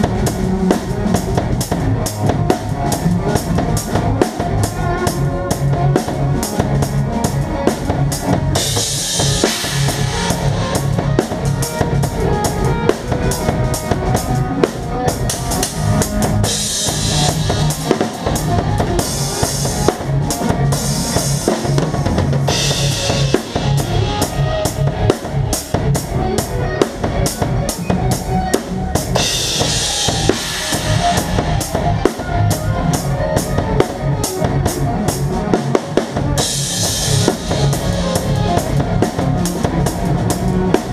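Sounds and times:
bass drum and snare strokes: 0:00.0 - 0:26.0
band playing: 0:00.0 - 0:40.9.

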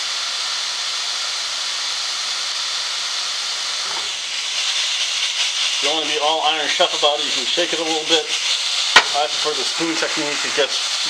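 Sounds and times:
vegetables sizzling in a pan: 0:00.0 - 0:11.0
pan scraping rattle: 0:03.8 - 0:04.2, 0:09.0 - 0:09.4.

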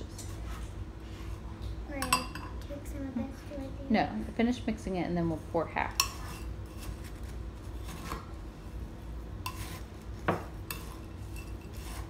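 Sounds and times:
spoon stirring stuffing: 0:05.7 - 0:08.3, 0:09.2 - 0:12.0.

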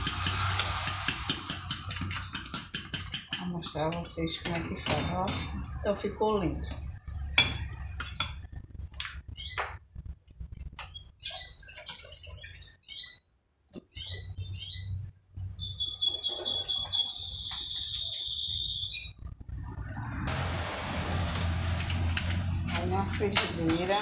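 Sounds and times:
bird chirping and trilling: 0:09.3 - 0:09.8, 0:10.8 - 0:19.2, 0:23.6 - 0:24.0.

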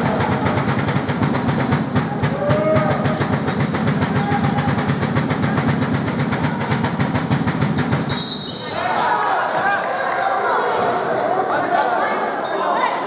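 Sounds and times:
fast rhythmic percussion clatter: 0:00.0 - 0:08.2.

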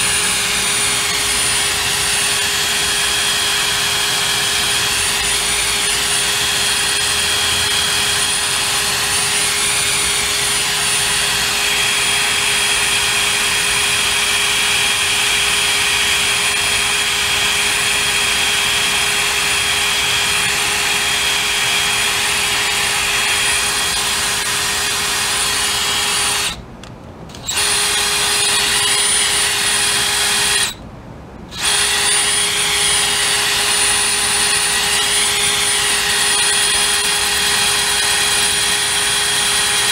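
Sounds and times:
cordless drill whining: 0:00.0 - 0:26.6, 0:27.3 - 0:30.8, 0:31.5 - 0:39.9.

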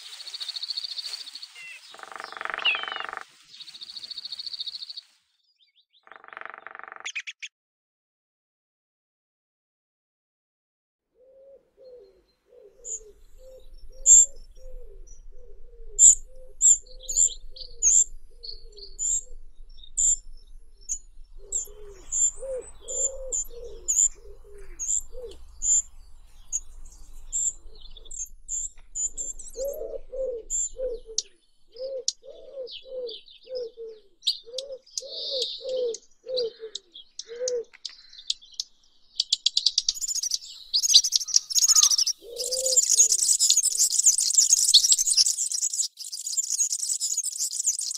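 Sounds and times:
high thin bird chirps: 0:00.0 - 0:05.2, 0:06.0 - 0:07.5, 0:12.8 - 0:33.6, 0:34.3 - 0:47.9
bird cooing: 0:11.2 - 0:37.8, 0:40.9 - 0:44.5.

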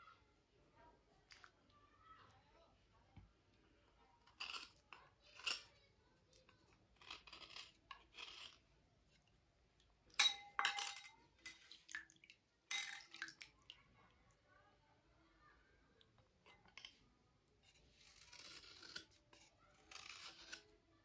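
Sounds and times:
scraping slate: 0:06.5 - 0:08.6, 0:17.6 - 0:20.7.

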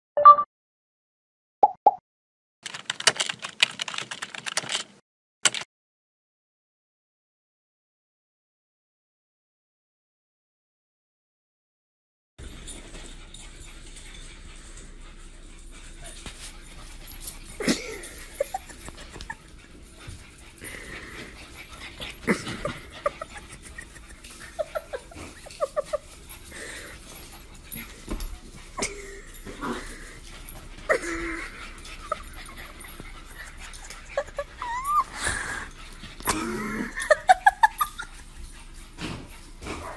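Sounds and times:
dog whimpering: 0:30.8 - 0:38.3.

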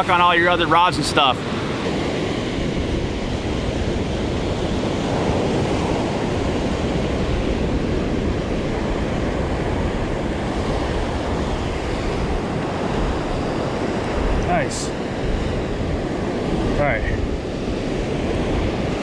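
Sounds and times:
ocean surf breaking: 0:00.0 - 0:19.0
wind buffeting microphone: 0:00.0 - 0:19.0.

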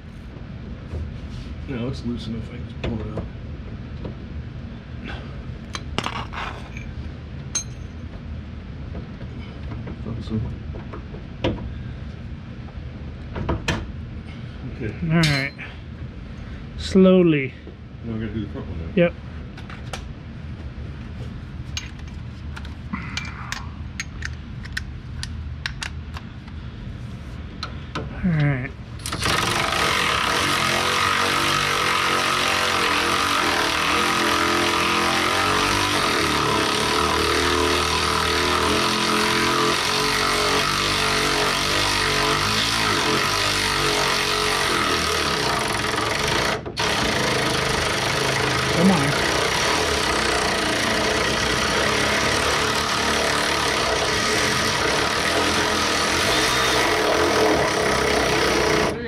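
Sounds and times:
motor-driven machine running: 0:29.0 - 0:59.0.

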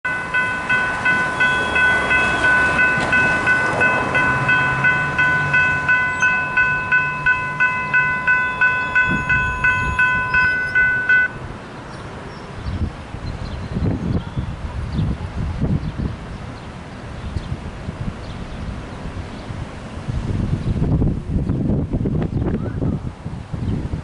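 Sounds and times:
railroad crossing bell ringing: 0:00.0 - 0:11.5.

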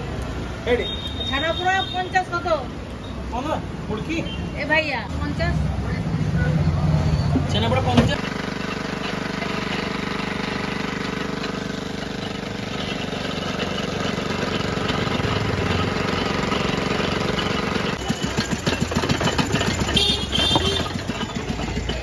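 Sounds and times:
small engine running: 0:08.2 - 0:22.0
rapid uneven knocking and clattering: 0:12.3 - 0:22.0.

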